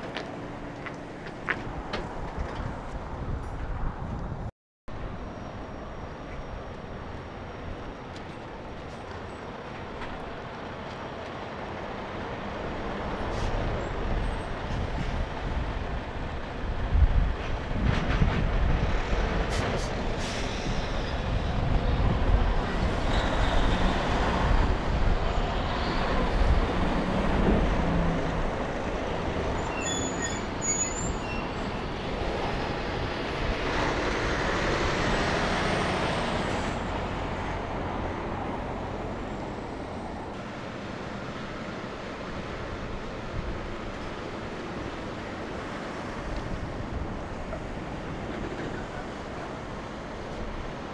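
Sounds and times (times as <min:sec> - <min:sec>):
tyres on pavement: 0:00.0 - 0:04.4.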